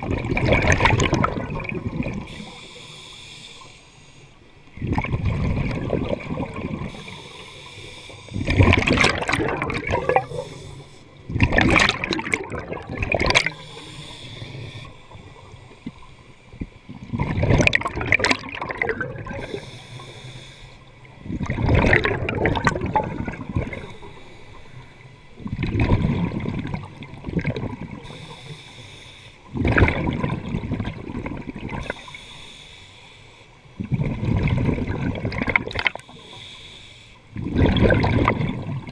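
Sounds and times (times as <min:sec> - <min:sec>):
exhaled bubbles gurgling: 0:00.0 - 0:03.0, 0:04.6 - 0:28.6, 0:29.4 - 0:32.2, 0:33.8 - 0:36.4, 0:37.3 - 0:38.9
scuba regulator breathing: 0:02.2 - 0:04.5, 0:06.9 - 0:08.6, 0:10.0 - 0:11.3, 0:13.4 - 0:16.5, 0:19.3 - 0:21.0, 0:23.7 - 0:25.4, 0:28.0 - 0:29.5, 0:31.8 - 0:33.8, 0:35.9 - 0:37.4.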